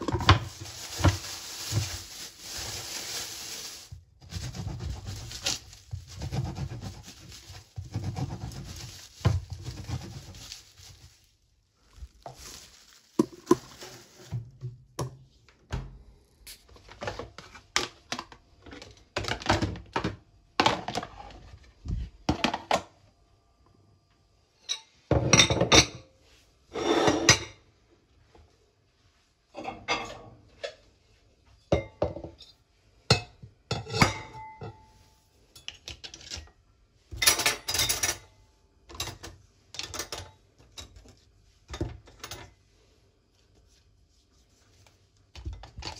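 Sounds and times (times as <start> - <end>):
plastic bag rustling: 0.0 - 14.6
knife sawing bread: 6.2 - 8.8.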